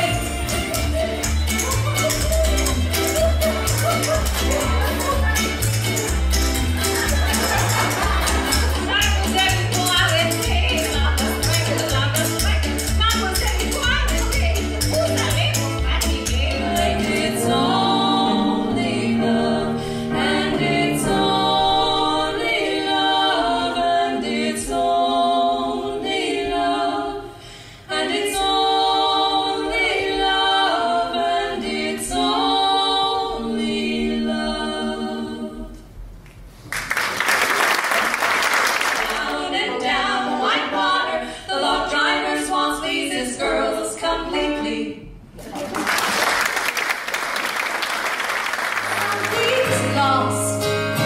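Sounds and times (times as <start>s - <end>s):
women singing in harmony: 13.3s - 35.9s, 38.9s - 45.2s, 48.9s - 50.7s
applause: 36.6s - 39.2s, 45.5s - 49.8s.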